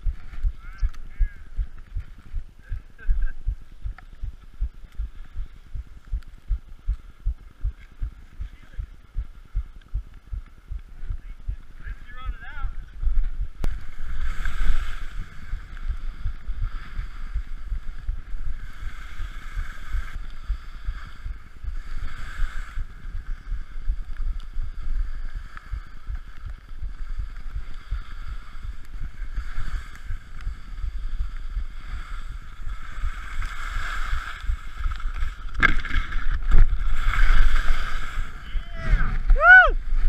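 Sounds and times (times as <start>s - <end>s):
wind buffeting microphone: 0.0s - 33.4s, 34.1s - 40.0s
skis scraping on snow: 11.2s - 40.0s.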